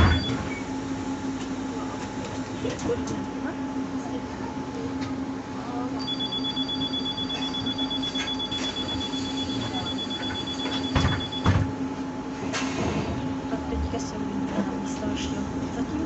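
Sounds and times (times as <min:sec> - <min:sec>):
two-tone electronic beep: 0:06.0 - 0:11.5.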